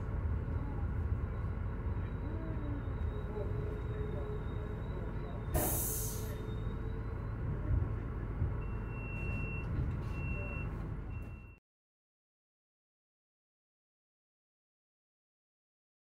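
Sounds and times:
vehicle engines idling: 0.0s - 11.6s
compressed air hiss: 5.6s - 6.4s.

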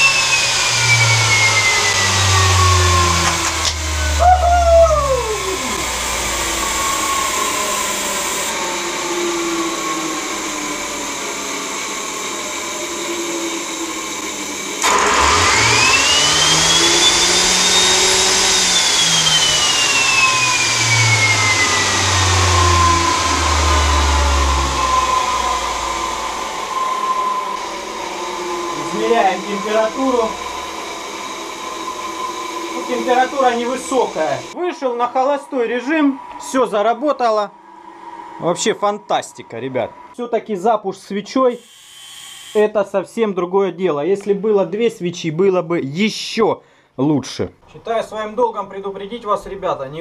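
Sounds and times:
small gas turbine running: 0.0s - 40.2s
turbine whine: 0.0s - 40.4s, 41.4s - 42.7s.

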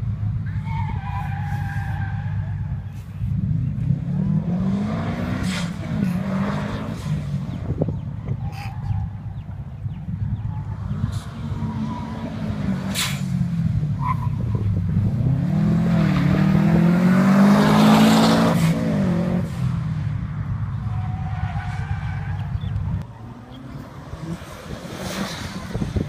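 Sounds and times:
car engine revving: 0.0s - 26.0s
tyres squealing: 0.5s - 3.2s, 10.4s - 13.4s.

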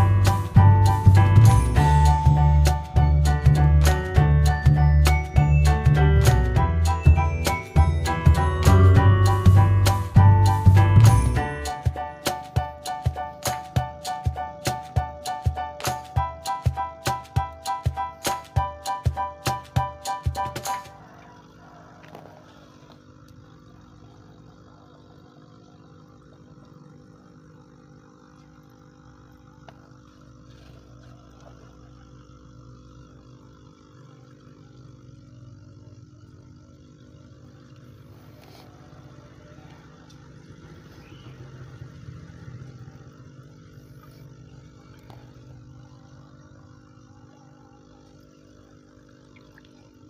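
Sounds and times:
air pump humming: 0.0s - 50.0s
air bubbling in water: 43.2s - 50.0s.

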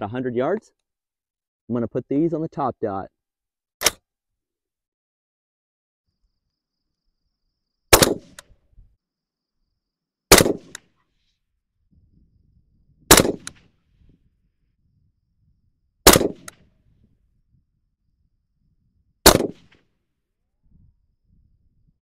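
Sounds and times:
suppressed rifle shots: 3.8s - 4.0s, 7.9s - 8.6s, 10.3s - 11.0s, 13.1s - 13.8s, 16.0s - 16.7s, 19.2s - 19.9s.

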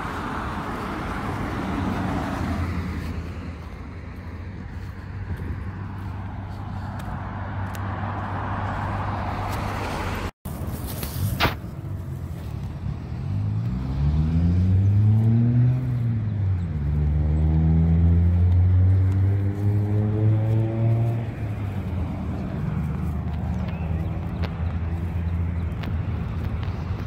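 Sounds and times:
nearby vehicle engine: 0.0s - 27.0s.

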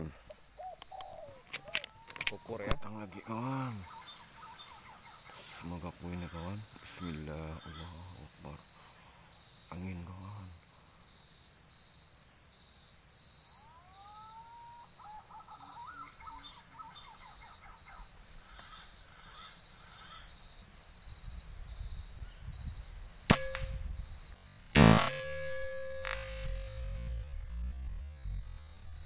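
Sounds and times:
insect drone: 0.0s - 29.0s
air rifle firing: 23.3s - 23.9s, 24.8s - 27.3s.

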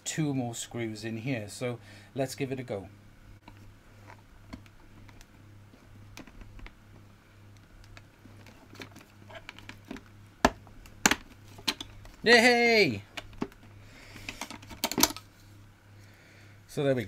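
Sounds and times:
steady low hum: 0.0s - 17.0s
plastic clips snapping: 7.5s - 12.0s.

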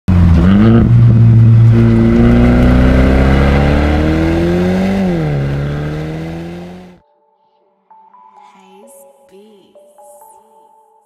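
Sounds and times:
car engine accelerating hard: 0.1s - 7.0s.

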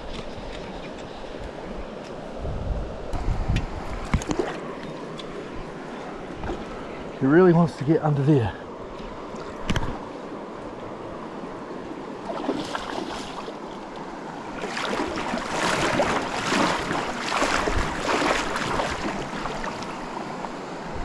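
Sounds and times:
stream water running: 0.0s - 21.0s
water splashing: 12.2s - 20.4s.

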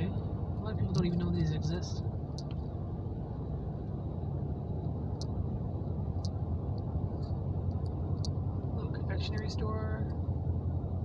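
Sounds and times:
car road rumble: 0.0s - 11.0s.

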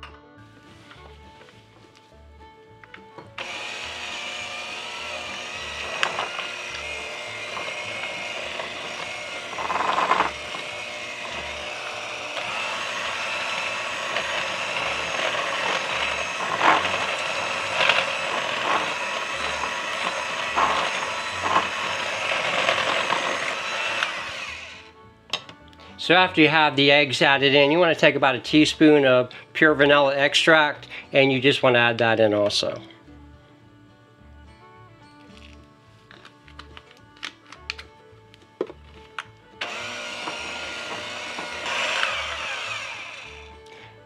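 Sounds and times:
electric hand mixer running: 3.3s - 25.0s, 39.6s - 44.0s.

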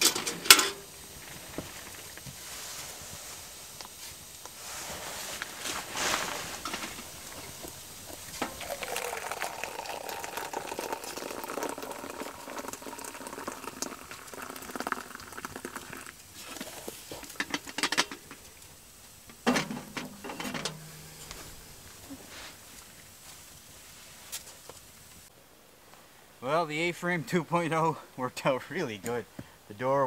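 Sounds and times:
coffee pot simmering and bubbling: 0.0s - 25.3s
pot clunking on stovetop: 19.3s - 21.2s
metal knocks: 19.4s - 21.3s.

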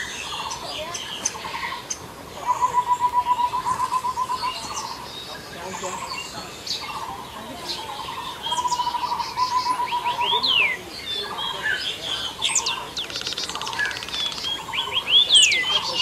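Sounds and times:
high bird chirps: 0.0s - 16.0s
fast pulsed bird trill: 6.0s - 16.0s.

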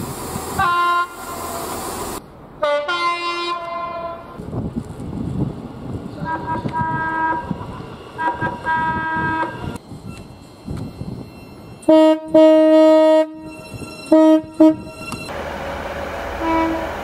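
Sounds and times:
train horn blasts: 0.6s - 1.6s, 2.6s - 4.3s, 6.2s - 7.6s, 8.2s - 9.8s, 11.8s - 15.0s, 16.4s - 17.0s.

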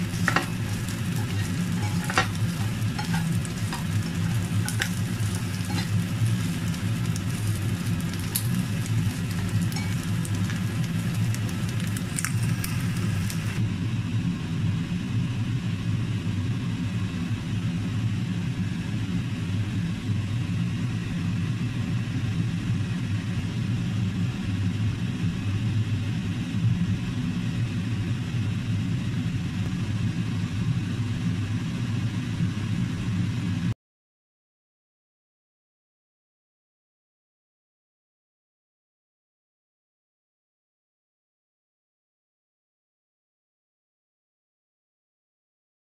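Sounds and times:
prawns sizzling in a frying pan: 0.0s - 13.6s
steady low hum: 0.0s - 33.6s.

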